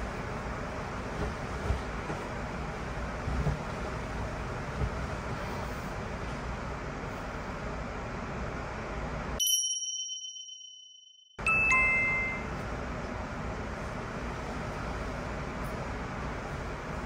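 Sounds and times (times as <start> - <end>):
bright chime ding: 9.4 - 12.5
lower chime tones: 9.4 - 12.6.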